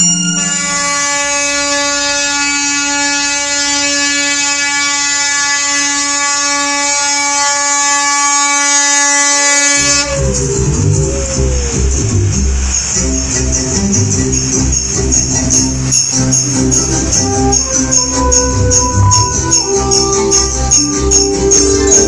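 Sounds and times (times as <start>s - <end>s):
truck air horn blast: 0.4s - 11.7s.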